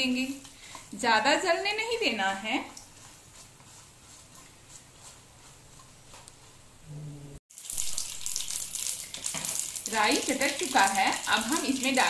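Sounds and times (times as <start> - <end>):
mustard seeds crackling in hot oil: 7.5 - 12.0.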